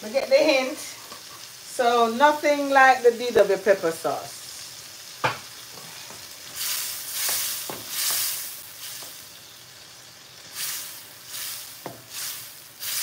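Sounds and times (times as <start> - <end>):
food sizzling in a frying pan: 0.0 - 13.0
wooden spoon knocking a pan: 5.2 - 5.5, 11.8 - 12.1.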